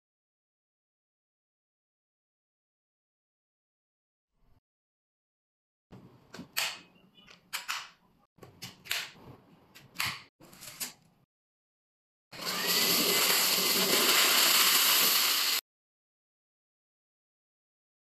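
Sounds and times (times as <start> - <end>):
vacuum motor running: 12.4 - 15.6.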